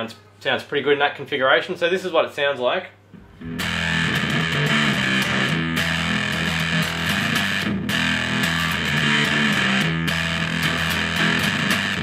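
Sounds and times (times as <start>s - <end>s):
heavily distorted electric guitar: 3.2s - 12.0s.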